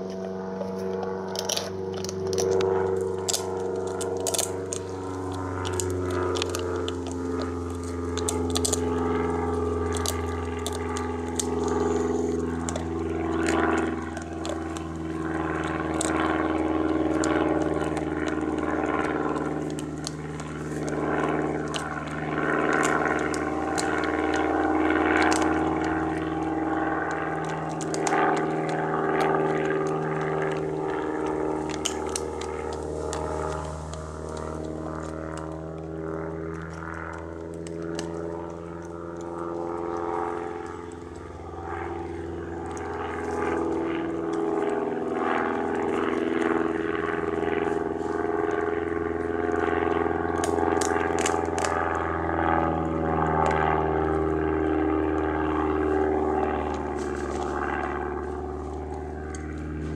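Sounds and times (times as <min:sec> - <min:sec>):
didgeridoo drone: 0:00.0 - 0:59.9
sharp clicks: 0:00.9 - 0:16.4, 0:17.0 - 0:41.8, 0:50.4 - 0:51.8.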